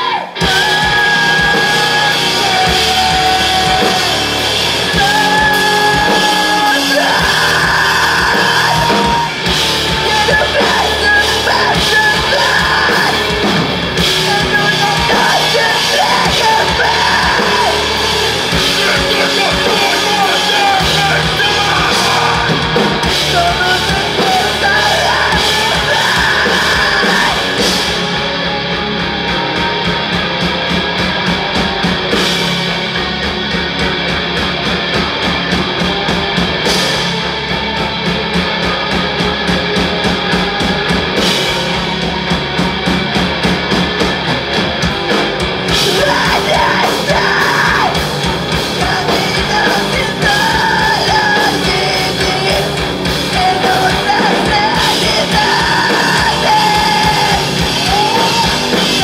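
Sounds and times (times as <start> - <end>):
lead singer singing: 0.0 - 30.4, 45.0 - 59.0
bass guitar: 0.0 - 59.0
drum kit: 0.0 - 59.0
electric guitars: 0.0 - 59.0.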